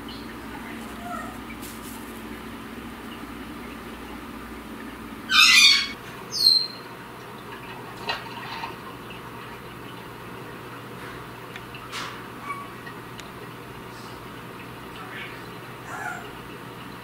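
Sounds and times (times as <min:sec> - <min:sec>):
cockatoo screeching: 0:05.3 - 0:06.8.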